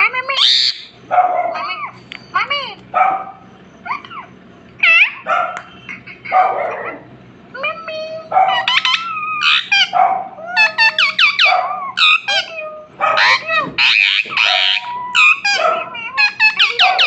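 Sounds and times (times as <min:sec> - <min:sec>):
parrot squawks: 0:00.2 - 0:02.0, 0:03.0 - 0:07.0, 0:08.3 - 0:17.0
parrot chirping and whistling: 0:00.3 - 0:02.4, 0:08.5 - 0:10.0, 0:10.6 - 0:12.5, 0:13.2 - 0:17.0.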